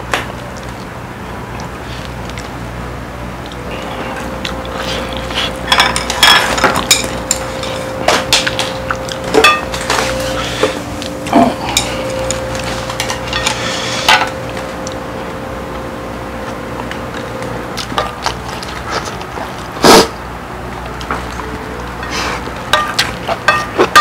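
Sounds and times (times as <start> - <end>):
metal utensils clinking on plate: 3.8 - 10.8, 11.6 - 15.0, 22.0 - 24.0.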